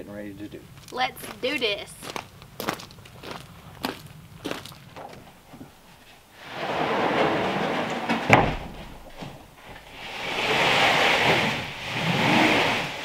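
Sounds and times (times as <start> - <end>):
wooden boards scraping: 4.9 - 13.0
board dropping onto pile: 6.7 - 9.4.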